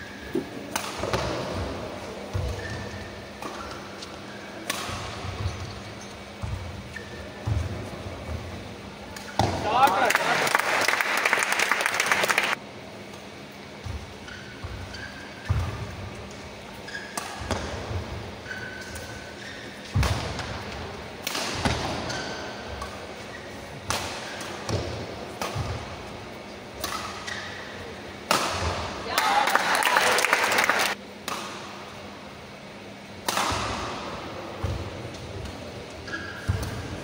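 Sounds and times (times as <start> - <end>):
racket hitting shuttlecock: 0.6 - 1.5, 4.6 - 7.7, 15.0 - 23.0, 23.8 - 25.9, 26.7 - 27.6, 28.2 - 29.3, 31.2 - 31.8, 33.2 - 35.2
shoes squeaking on court: 2.0 - 8.6, 13.0 - 20.6, 26.4 - 27.9, 34.7 - 37.0.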